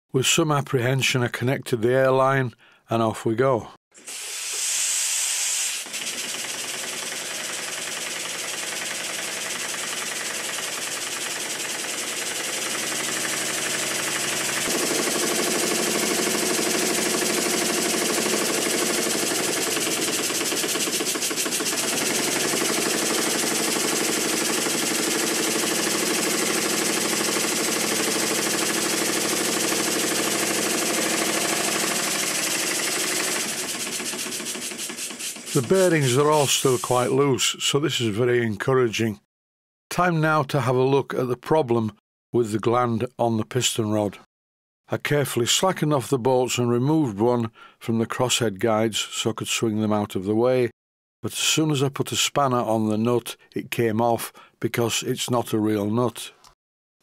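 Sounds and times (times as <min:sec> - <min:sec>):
hiss of air: 0:04.0 - 0:05.9, 0:33.8 - 0:37.2
model steam engine exhaust beats: 0:04.0 - 0:37.2.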